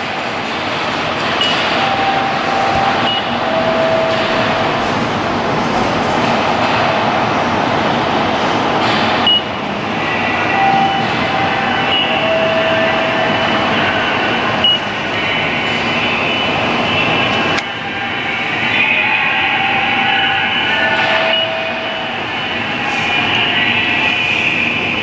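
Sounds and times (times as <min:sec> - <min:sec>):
loud mechanical rumble: 0:00.0 - 0:25.0
short high beeps: 0:01.4 - 0:04.8, 0:10.5 - 0:13.6.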